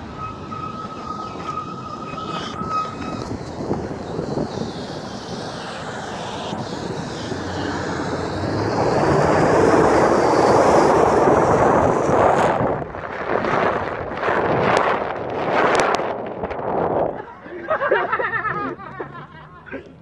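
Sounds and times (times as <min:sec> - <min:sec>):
thin steady whine: 0:00.0 - 0:11.9
wind noise: 0:00.0 - 0:19.2
water spraying off tyres: 0:00.1 - 0:16.4.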